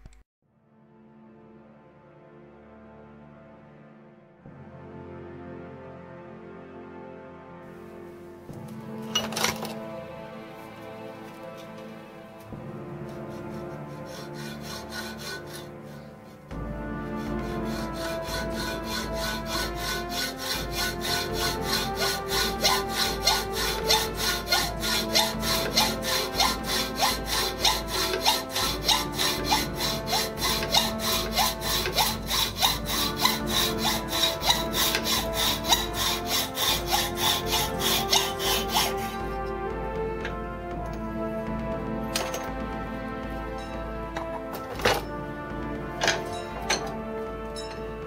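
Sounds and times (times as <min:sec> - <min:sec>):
background music: 0:00.0 - 0:48.0
hacksaw cutting metal: 0:08.6 - 0:09.9, 0:11.4 - 0:11.9, 0:13.0 - 0:16.4, 0:17.2 - 0:39.5, 0:42.2 - 0:42.6, 0:44.1 - 0:45.2, 0:46.0 - 0:47.8.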